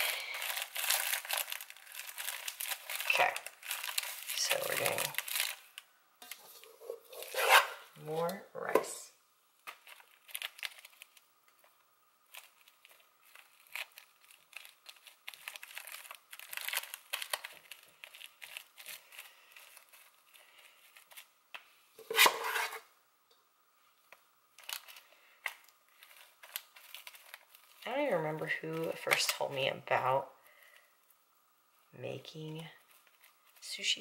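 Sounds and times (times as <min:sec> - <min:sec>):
scrape and knock on metal pan: 0:22.0 - 0:22.8.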